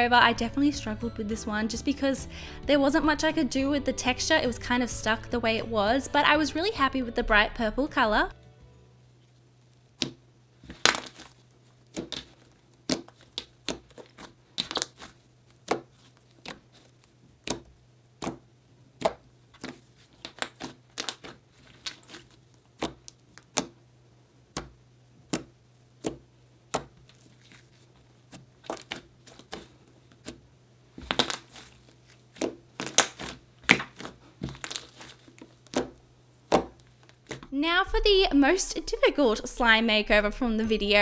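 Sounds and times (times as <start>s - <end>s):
slime squishing with sharp clicks: 17.4s - 23.8s.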